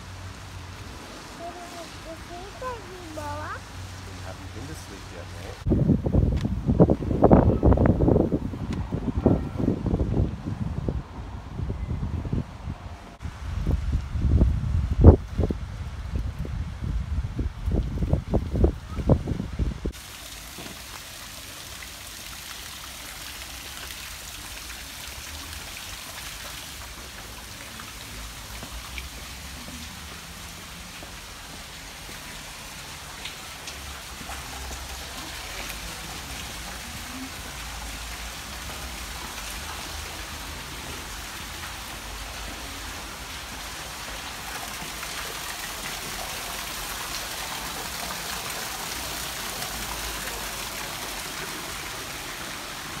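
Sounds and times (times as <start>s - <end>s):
falling water hissing: 0.0s - 5.7s, 19.8s - 53.0s.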